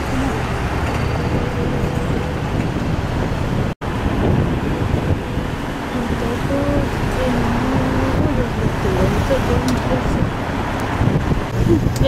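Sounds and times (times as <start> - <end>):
road traffic rumble: 0.0 - 12.0
wind buffeting microphone: 0.0 - 12.0.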